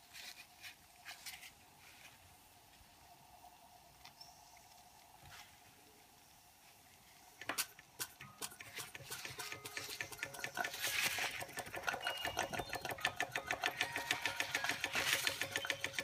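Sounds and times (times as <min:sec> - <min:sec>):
toy steam engine clattering: 0:07.4 - 0:16.0.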